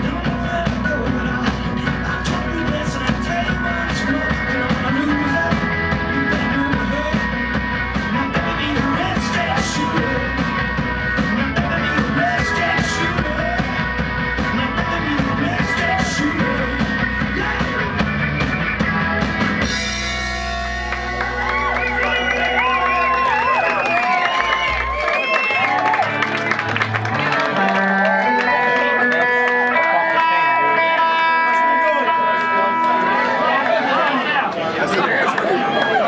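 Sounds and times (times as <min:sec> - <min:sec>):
sung vocals: 0:00.0 - 0:18.5
rock band playing: 0:00.0 - 0:36.0
ringing guitar chord: 0:27.7 - 0:33.6.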